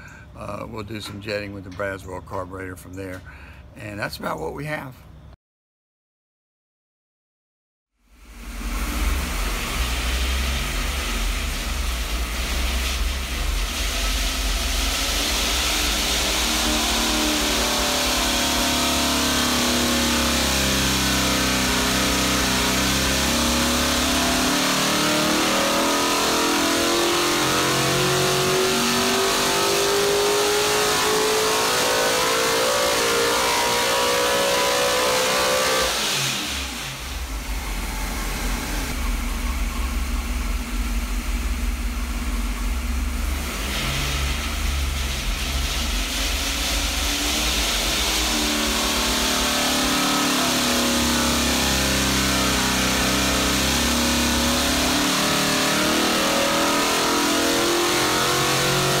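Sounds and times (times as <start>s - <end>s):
race engine revving on dynamometer: 8.2s - 59.0s.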